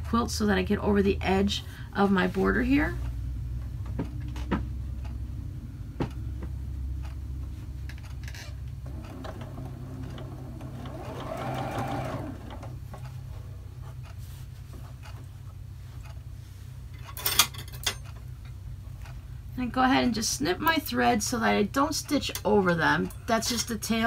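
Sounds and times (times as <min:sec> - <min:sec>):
sewing machine running: 0:08.8 - 0:12.9.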